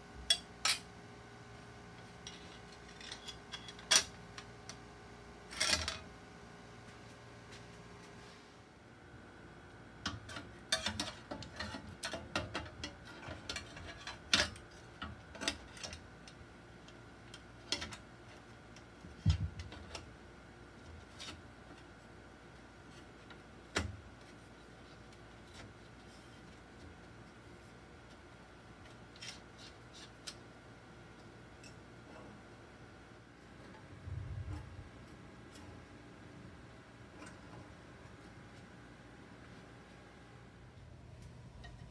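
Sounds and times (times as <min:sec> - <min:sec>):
faint steady hum: 0:00.0 - 0:41.9.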